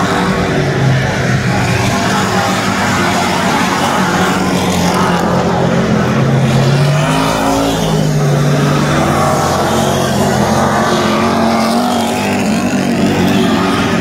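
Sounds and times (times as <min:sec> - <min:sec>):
race car engines passing: 0:00.0 - 0:14.0.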